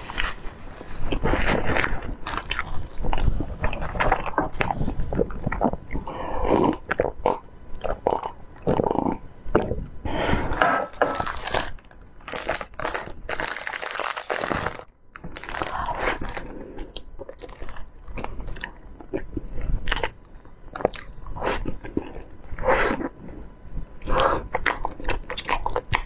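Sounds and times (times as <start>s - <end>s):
plastic wrap crinkling: 0.0s - 5.1s, 10.8s - 16.5s.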